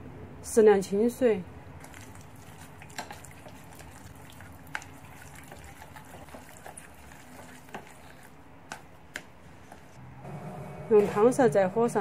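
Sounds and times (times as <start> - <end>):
wet squishing of stirred filling: 1.8 - 9.0.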